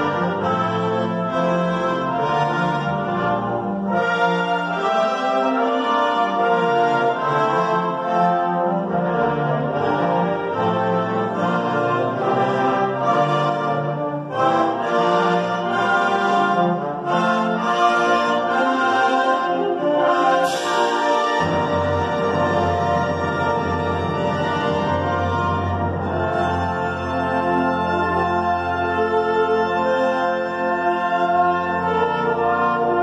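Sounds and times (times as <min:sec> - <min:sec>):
concert band playing: 0:00.0 - 0:33.0.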